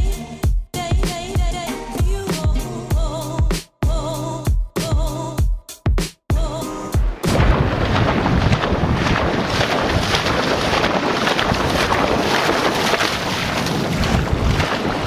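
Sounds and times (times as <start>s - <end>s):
water splashing: 7.0s - 15.0s
wind buffeting microphone: 7.3s - 15.0s.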